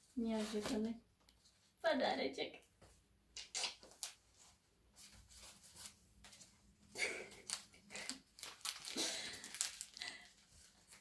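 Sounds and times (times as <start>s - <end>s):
plastic wrapping crinkling: 7.0s - 11.0s.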